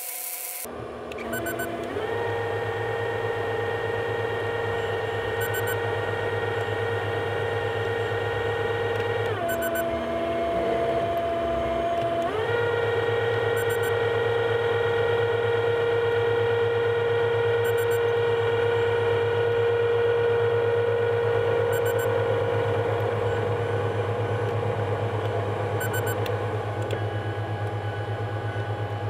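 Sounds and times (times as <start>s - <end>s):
combine harvester running: 0.0s - 29.0s
faint short beeps: 5.4s - 5.8s, 9.5s - 9.8s, 13.6s - 14.0s, 17.6s - 18.1s, 21.7s - 22.1s, 25.8s - 26.2s.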